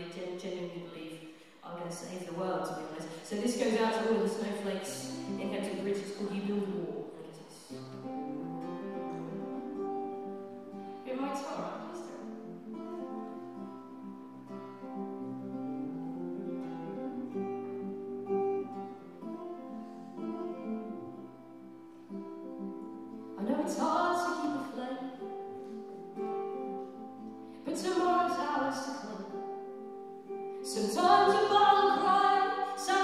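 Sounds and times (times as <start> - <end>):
woman singing: 0.0 - 7.7, 23.4 - 25.4, 27.6 - 29.8, 30.6 - 33.0
acoustic guitar playing: 1.8 - 33.0.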